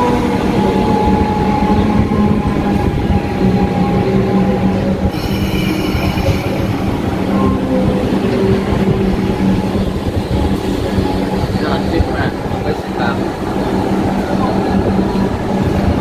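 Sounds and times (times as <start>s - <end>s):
train rumble and motor whine: 0.0s - 16.0s
high-pitched wheel squeal: 5.1s - 7.7s.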